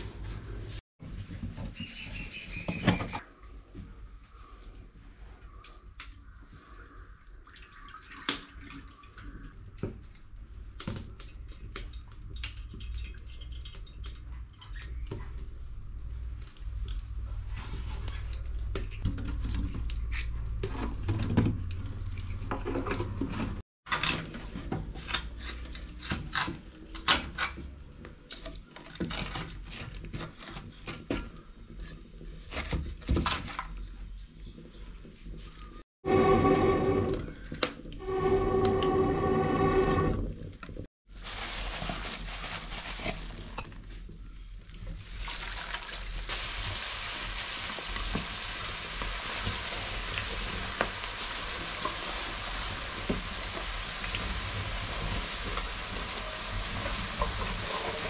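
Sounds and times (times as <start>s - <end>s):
wood fire crackling: 46.2s - 58.0s.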